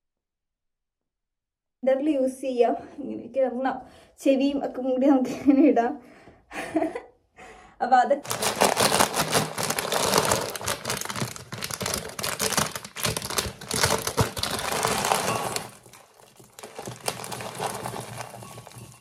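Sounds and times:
plastic packet crinkling: 8.2s - 19.0s.

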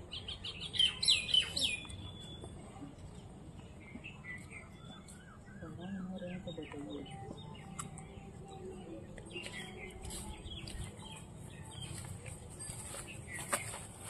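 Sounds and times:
birds chirping: 0.0s - 14.0s.

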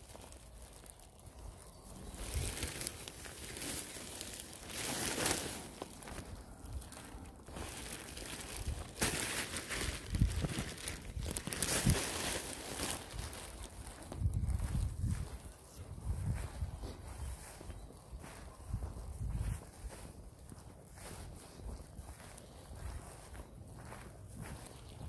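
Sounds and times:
plastic bag crinkling and rustling: 0.0s - 15.8s
footsteps on grass: 0.0s - 25.0s.

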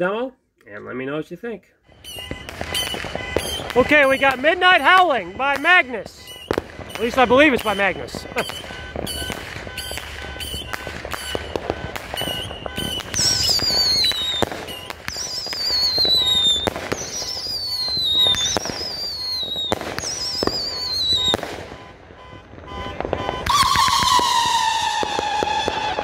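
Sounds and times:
fireworks bursts banging: 1.9s - 26.0s
fireworks shots: 1.9s - 26.0s
fireworks whistling: 1.9s - 26.0s.

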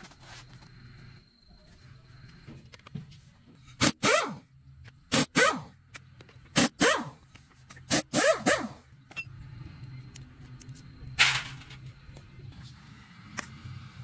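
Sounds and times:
pneumatic impact wrench bursts: 3.8s - 4.4s, 5.1s - 5.8s, 6.5s - 7.2s, 7.8s - 8.8s.

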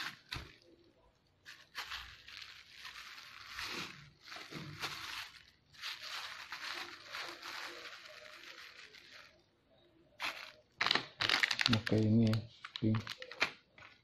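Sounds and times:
plastic bag crinkling: 0.0s - 9.5s, 10.2s - 14.0s.

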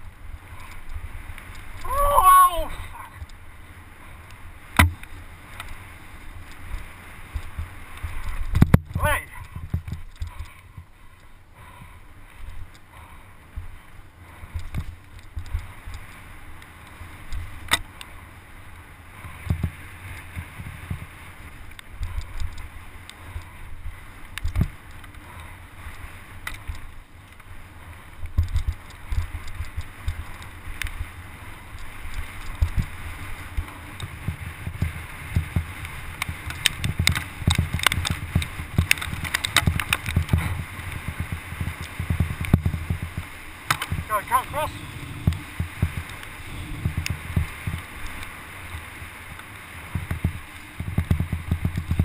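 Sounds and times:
tyres rumbling over dirt trail: 0.0s - 52.0s
bike knocks and rattles: 4.7s - 5.7s, 8.3s - 10.4s, 33.6s - 44.1s, 49.9s - 52.0s
wind buffeting microphone: 28.2s - 52.0s.

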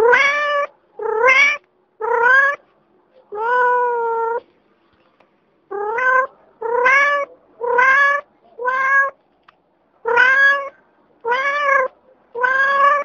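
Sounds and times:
cat meowing: 0.0s - 2.6s, 3.3s - 4.4s, 5.7s - 9.2s, 10.0s - 13.0s.

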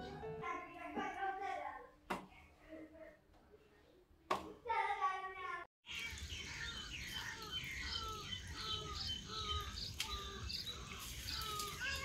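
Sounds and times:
birds chirping: 5.8s - 12.0s.

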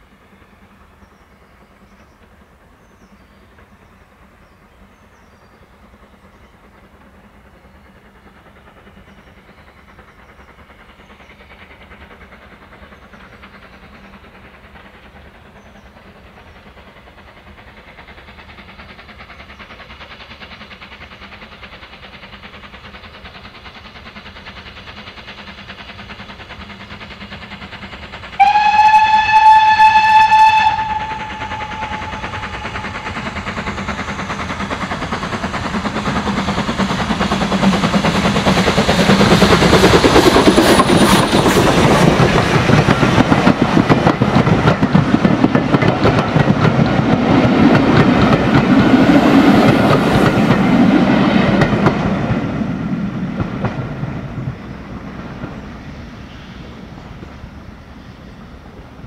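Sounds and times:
steam locomotive exhaust and wheels: 0.0s - 59.0s
steam locomotive whistle: 28.4s - 33.7s.

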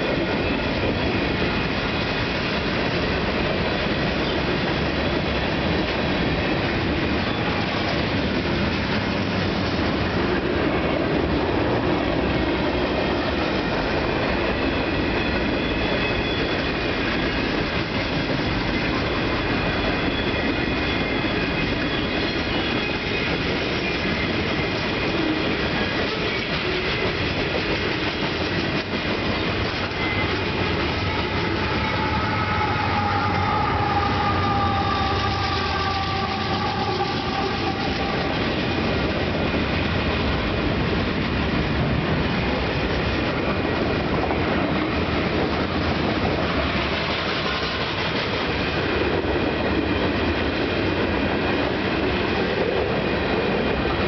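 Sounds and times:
diesel locomotive engine rumble: 0.0s - 54.0s
train wheels rumbling on rails: 0.0s - 54.0s
two-note train horn: 31.1s - 38.8s.

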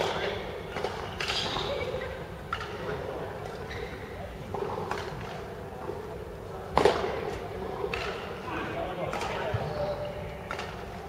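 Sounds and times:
background murmur: 0.0s - 11.0s
racket hitting shuttlecock: 6.7s - 7.2s.

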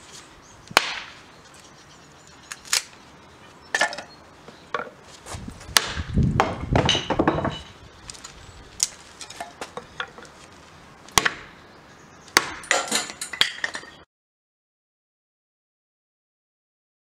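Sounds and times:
sticks clattering on stones: 3.7s - 4.1s, 6.4s - 10.5s, 12.4s - 14.0s.

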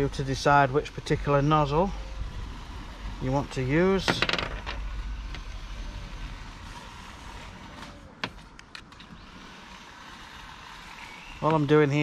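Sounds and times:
low rumble: 0.0s - 8.2s.

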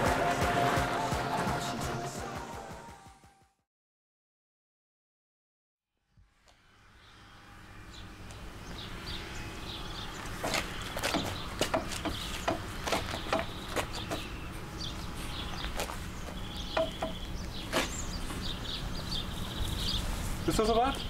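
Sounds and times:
birds chirping: 7.0s - 21.0s
tow straps clicking and knocking: 10.4s - 14.3s, 15.6s - 18.0s.

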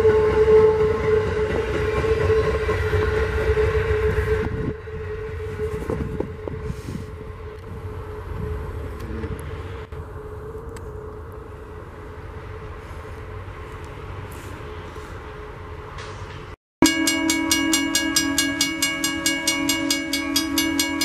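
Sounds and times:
train wheels rumbling on rails: 0.0s - 9.9s, 10.6s - 21.0s
rail clicks: 15.9s - 21.0s
steady hum: 16.8s - 21.0s.

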